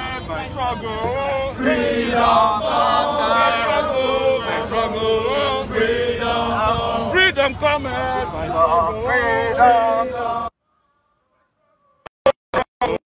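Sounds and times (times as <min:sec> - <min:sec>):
crowd chanting in unison: 0:01.5 - 0:10.6.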